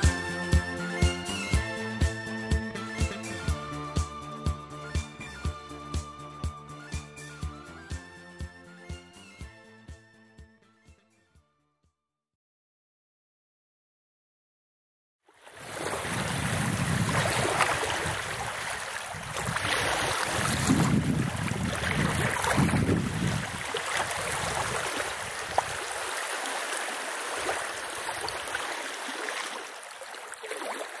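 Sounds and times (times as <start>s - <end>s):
waves washing onto shore: 15.4s - 31.0s.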